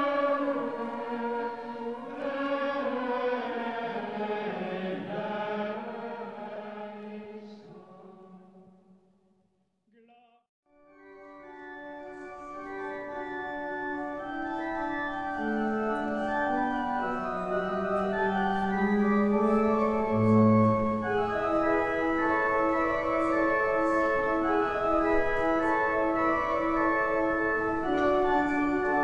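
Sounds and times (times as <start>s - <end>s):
organ chords: 11.0s - 29.0s.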